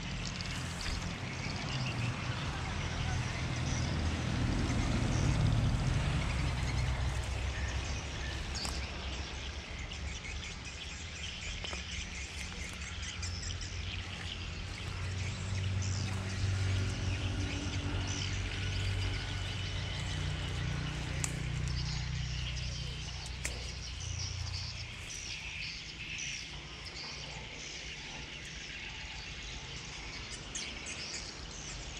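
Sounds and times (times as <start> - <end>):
small birds chirping: 0.0 - 31.9
steady low rumble: 0.1 - 26.6
grass rustling against camera: 0.2 - 1.9, 6.3 - 9.2, 10.7 - 26.4.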